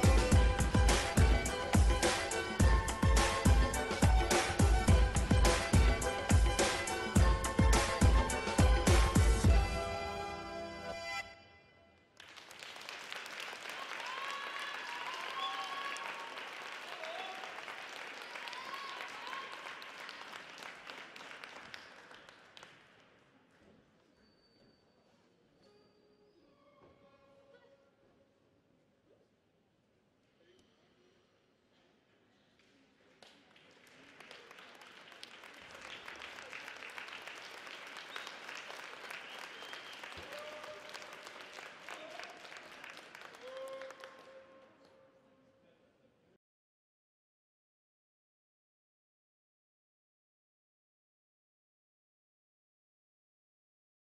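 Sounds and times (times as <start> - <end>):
audience applauding: 12.2 - 23.0, 33.2 - 44.5
audience cheer: 13.6 - 20.2, 38.3 - 44.3.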